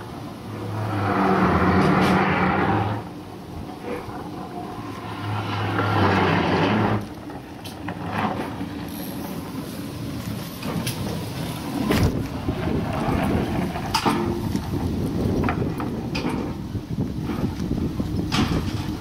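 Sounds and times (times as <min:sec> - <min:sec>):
iceboat runners rumbling on ice: 0:00.0 - 0:19.0.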